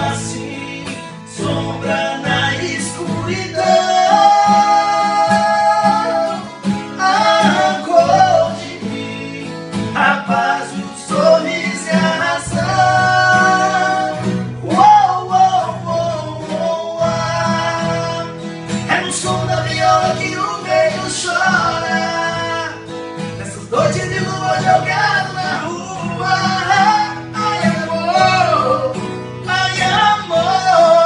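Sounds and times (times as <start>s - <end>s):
acoustic guitars strummed: 0.0s - 31.0s
men singing in harmony: 0.0s - 31.0s.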